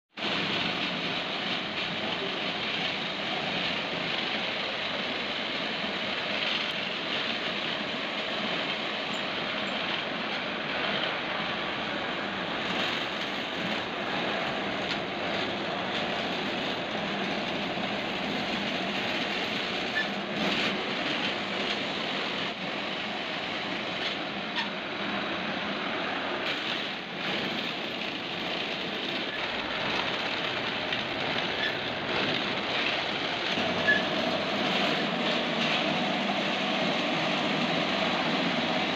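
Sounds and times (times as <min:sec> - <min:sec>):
wood rounding machine running: 0:00.2 - 0:38.9
wooden sticks being shaved: 0:26.5 - 0:38.9.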